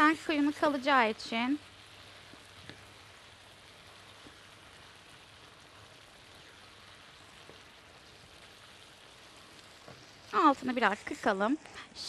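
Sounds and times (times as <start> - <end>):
food sizzling in a pan: 0.0 - 12.0
tiny pops: 2.2 - 2.9.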